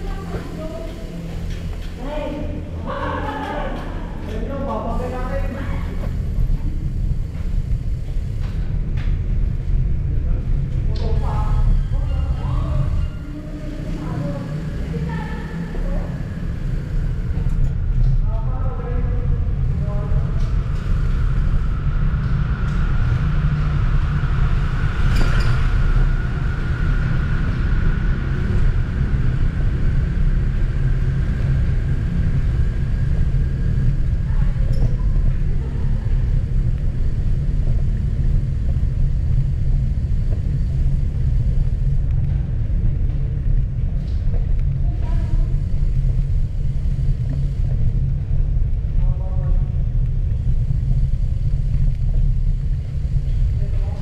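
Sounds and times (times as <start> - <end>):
echoing voices: 0.0 - 7.0, 10.3 - 17.6
bicycle tyre noise: 0.0 - 54.0.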